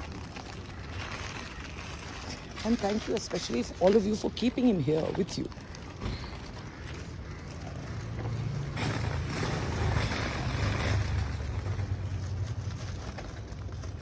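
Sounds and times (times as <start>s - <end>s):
vehicle engine rumble passing: 7.3s - 14.0s.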